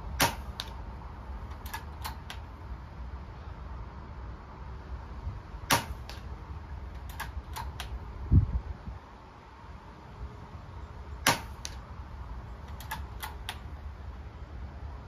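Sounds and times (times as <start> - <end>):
air rifle shot: 0.1 - 0.8, 5.7 - 6.3, 11.2 - 11.8
rifle action clicks: 1.5 - 2.4, 12.7 - 13.6
wind rumbling on microphone: 7.4 - 9.2.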